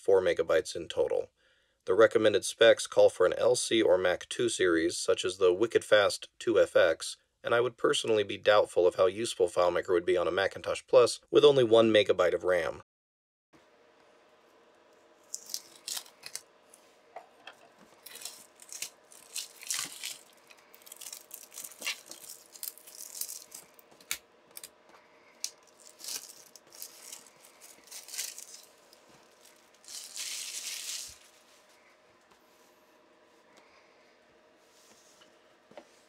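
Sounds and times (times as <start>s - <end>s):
shrink wrap crinkling: 15.1s - 16.9s, 17.6s - 31.8s.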